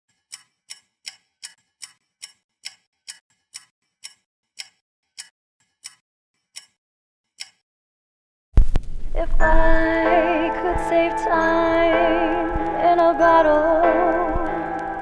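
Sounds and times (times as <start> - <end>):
clock ticking: 0.1 - 6.8, 7.4 - 7.6.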